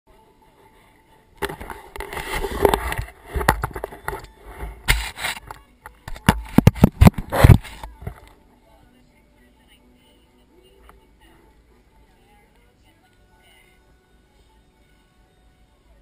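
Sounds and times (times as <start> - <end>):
camera handling rubbing and scraping: 1.4 - 8.3.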